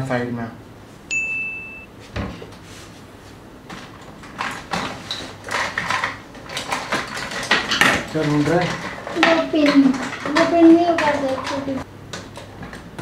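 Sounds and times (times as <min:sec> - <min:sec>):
chime sound effect: 0:01.1 - 0:01.9
small tools and pins clattering: 0:03.7 - 0:12.8.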